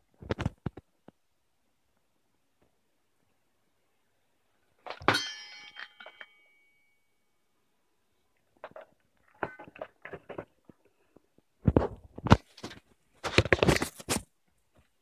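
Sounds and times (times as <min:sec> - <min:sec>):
tools bumping when picked up: 0:04.9 - 0:06.5.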